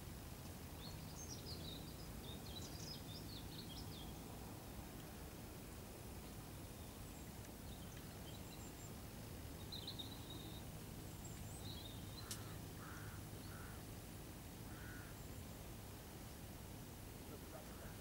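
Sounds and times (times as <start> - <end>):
distant birds calling: 6.2 - 15.8, 17.3 - 18.0
sharp click: 12.2 - 12.5.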